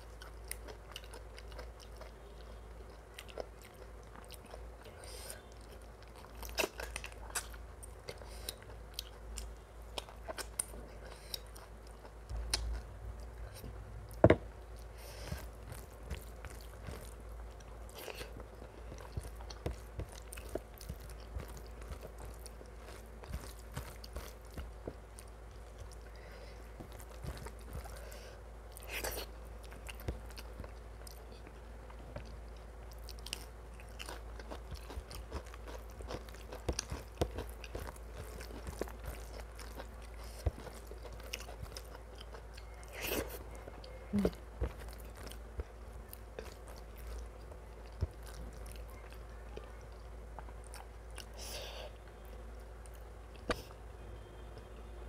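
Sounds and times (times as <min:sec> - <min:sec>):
person chewing food: 0:00.0 - 0:54.7
low steady hum: 0:00.0 - 0:55.0.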